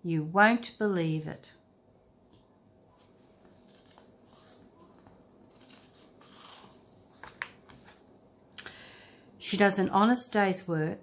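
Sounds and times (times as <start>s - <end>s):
paper page rustling: 2.9s - 8.0s.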